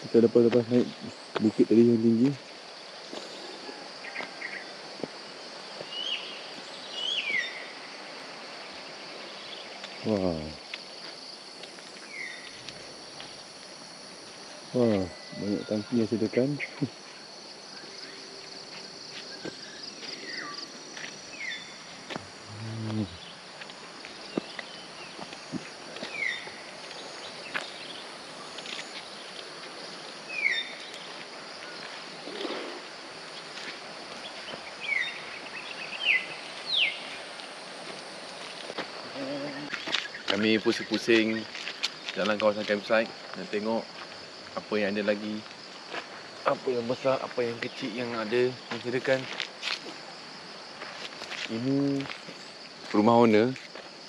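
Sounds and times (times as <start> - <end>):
forest background hiss: 0.0 - 54.0
high insect drone: 0.0 - 54.0
bird calling: 5.8 - 7.8, 19.3 - 23.5, 26.0 - 28.5, 30.3 - 32.7, 34.3 - 37.3.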